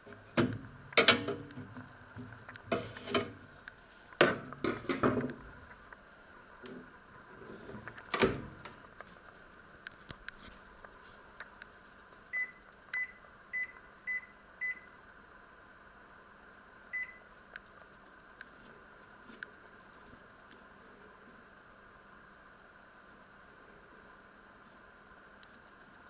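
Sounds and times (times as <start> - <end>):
microwave door shutting: 0.3 - 1.7, 8.1 - 8.7.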